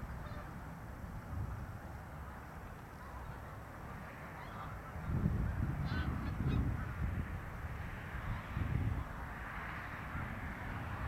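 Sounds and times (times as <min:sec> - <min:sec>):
distant waterbirds honking: 0:00.0 - 0:00.7, 0:01.5 - 0:07.0
wind buffeting microphone: 0:00.0 - 0:11.0.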